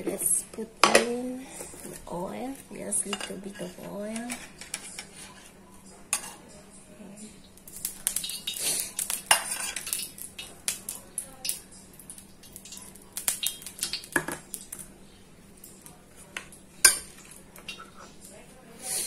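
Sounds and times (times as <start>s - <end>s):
oil crackling and popping: 7.4s - 15.0s, 15.6s - 18.4s.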